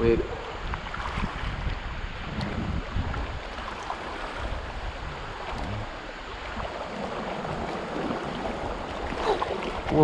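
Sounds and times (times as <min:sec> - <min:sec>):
river water rushing around legs: 0:00.3 - 0:10.0.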